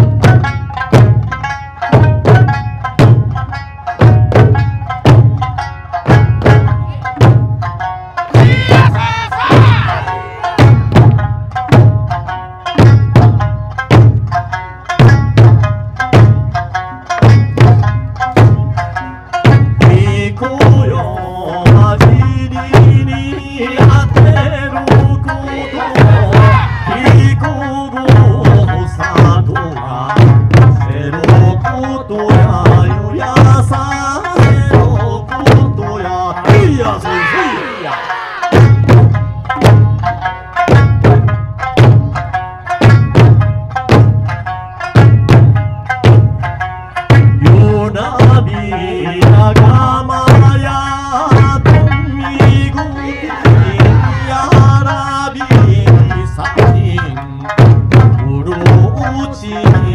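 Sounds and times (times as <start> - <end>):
large drums struck in unison: 0.0 - 37.8, 38.4 - 59.9
sharp drum strokes: 4.0 - 14.3, 51.2 - 57.0
folk song singing: 6.6 - 11.3, 18.7 - 40.9, 46.9 - 59.9
barrel drums struck: 51.4 - 54.8.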